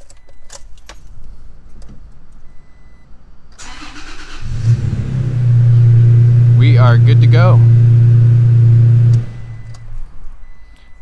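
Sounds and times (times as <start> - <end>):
car engine starting and running: 3.5 - 10.7
short faint beep: 9.3 - 11.0.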